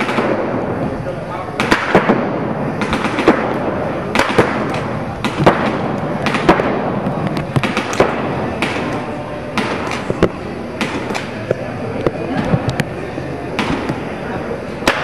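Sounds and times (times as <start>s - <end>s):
steady indoor din: 0.0s - 15.0s
paintball markers firing: 1.6s - 2.2s, 2.8s - 12.9s.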